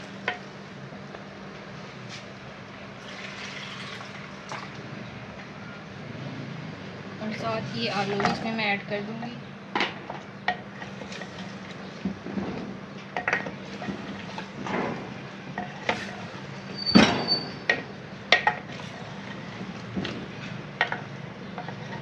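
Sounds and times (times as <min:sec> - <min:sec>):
wooden spoon knocking and scraping pot: 0:10.1 - 0:16.4, 0:17.3 - 0:22.0.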